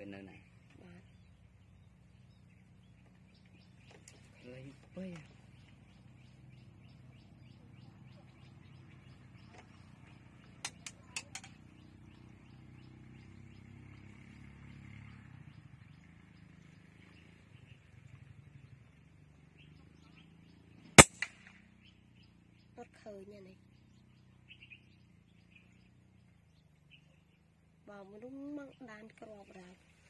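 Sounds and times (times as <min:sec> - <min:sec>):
sharp clicks: 0:10.6 - 0:11.6, 0:21.0 - 0:21.6
faint bird chirps: 0:21.6 - 0:30.0.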